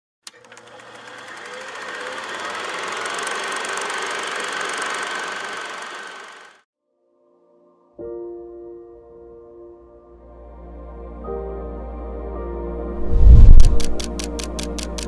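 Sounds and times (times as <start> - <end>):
mechanical ticking rattle: 13.6 - 15.0.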